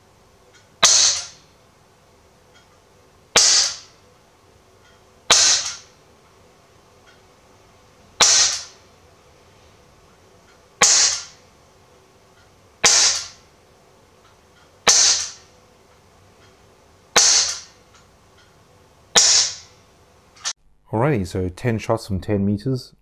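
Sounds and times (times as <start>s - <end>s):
airgun shots: 0.8s - 1.5s, 3.3s - 4.0s, 5.3s - 6.0s, 8.2s - 8.8s, 10.8s - 11.4s, 12.8s - 13.4s, 14.8s - 15.5s, 17.1s - 17.8s, 19.1s - 19.7s.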